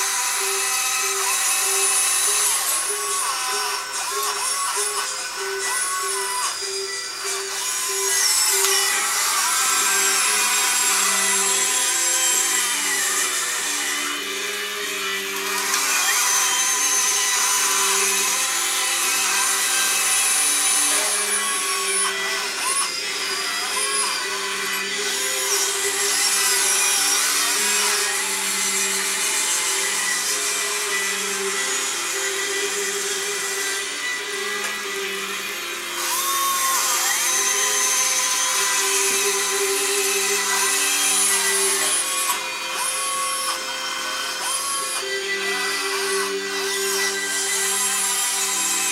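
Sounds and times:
electric motors whirring: 0.0s - 48.9s.

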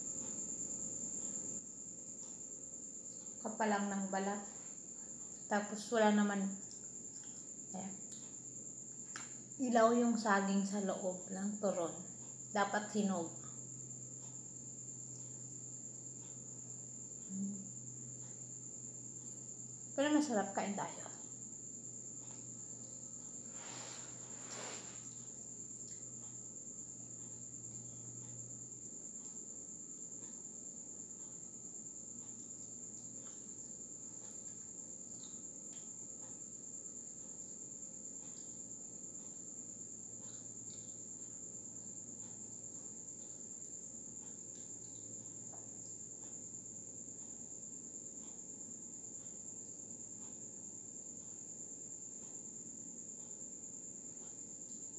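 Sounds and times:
soft eating sounds: 21.2s - 50.8s.

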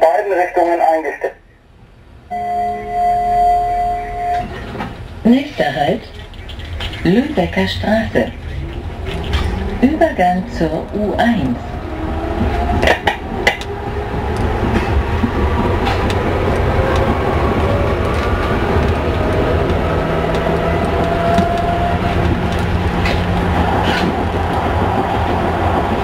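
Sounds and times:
train wheels rumbling: 1.5s - 26.0s
wheels clicking over rail joints: 4.3s - 26.0s.

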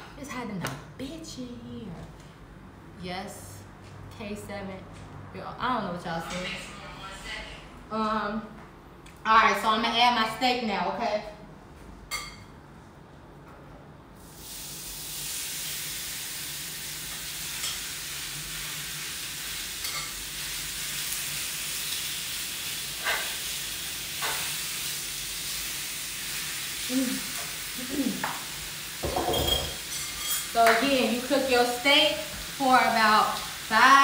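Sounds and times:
steak sizzling in a skillet: 14.2s - 34.0s.

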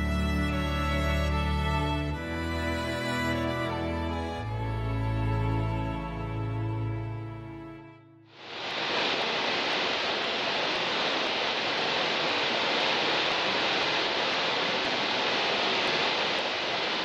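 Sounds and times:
stream rushing over rocks: 8.4s - 17.0s.

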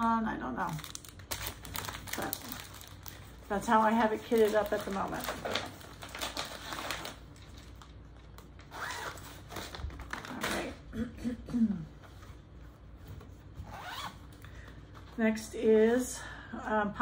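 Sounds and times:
paper packets rustling: 0.6s - 10.8s.

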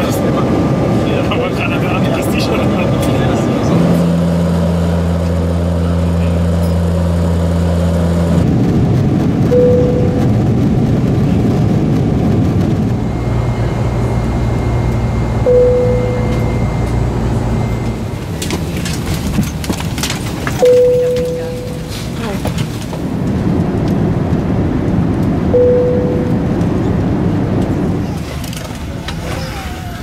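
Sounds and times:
aircraft cabin engine drone: 0.0s - 30.0s
low seatbelt chime: 9.5s - 10.5s, 15.4s - 18.3s, 20.6s - 22.2s, 25.6s - 26.5s.

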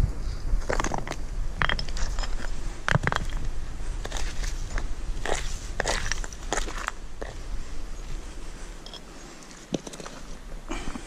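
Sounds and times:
stones clacking and scraping: 0.6s - 7.4s, 8.8s - 10.4s.

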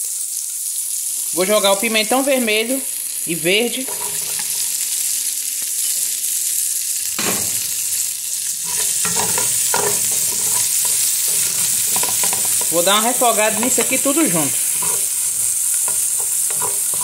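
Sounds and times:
vegetables sizzling in oil: 0.0s - 17.0s
wooden spoon scraping pot: 8.6s - 17.0s.

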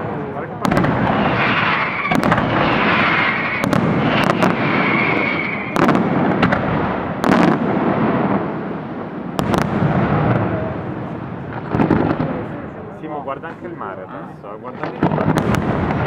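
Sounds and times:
firework shells bursting with bangs: 0.6s - 8.6s
firework crackling hiss: 0.8s - 6.7s.

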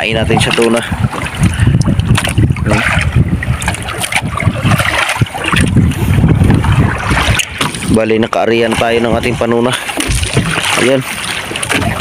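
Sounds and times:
water sloshing against boat: 0.0s - 12.0s
wind buffeting microphone: 0.0s - 12.0s.

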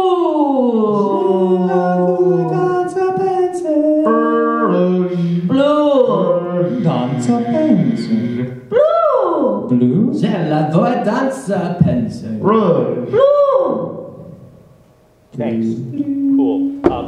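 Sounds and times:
voices singing wordless glides: 0.0s - 9.6s.

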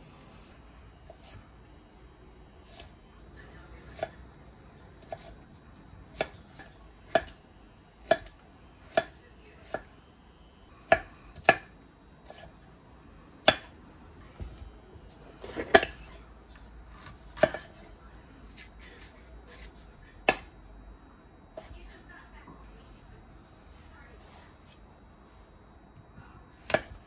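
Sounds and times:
knife chopping on wooden board: 5.0s - 5.4s, 7.1s - 7.4s, 8.0s - 9.9s, 10.9s - 12.5s, 13.4s - 13.7s, 15.4s - 16.0s, 17.0s - 17.8s, 20.3s - 20.5s, 26.6s - 27.0s.

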